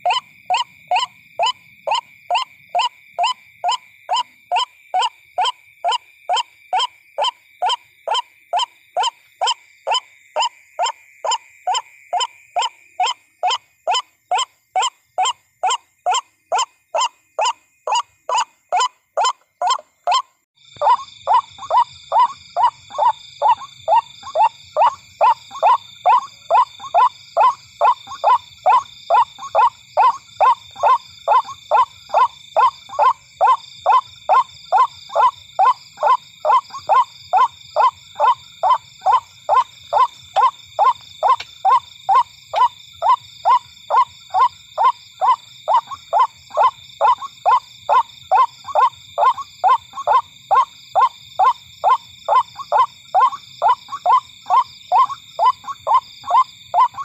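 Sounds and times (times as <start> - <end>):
waterhen calling harsh notes: 20.8 - 57.0.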